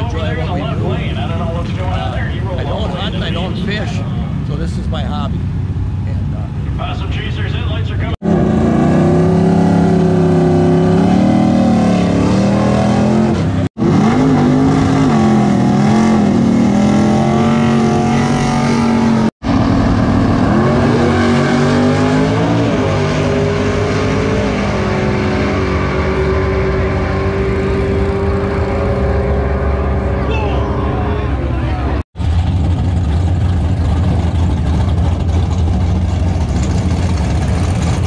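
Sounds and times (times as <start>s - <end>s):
drag car engine revving: 8.1s - 38.0s.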